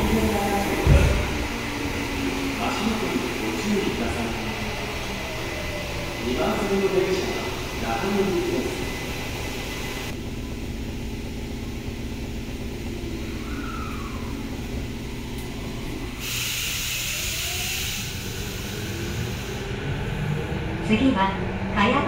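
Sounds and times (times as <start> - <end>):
subway train hum: 0.0 - 22.0
air hiss: 16.2 - 19.7.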